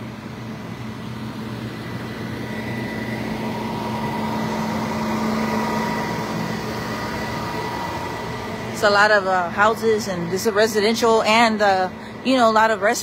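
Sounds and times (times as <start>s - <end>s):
constant hum: 0.0s - 13.0s
truck engines idling: 0.0s - 13.0s.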